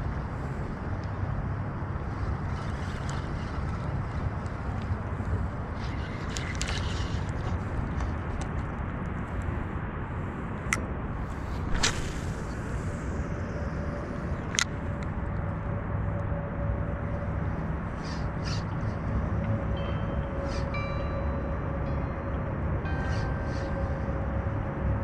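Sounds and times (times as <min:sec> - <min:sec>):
low steady rumble: 0:00.0 - 0:25.0
fishing reel whine: 0:02.4 - 0:07.6
fishing rod cast clicks and swish: 0:05.8 - 0:08.7, 0:10.7 - 0:12.8, 0:14.4 - 0:15.2.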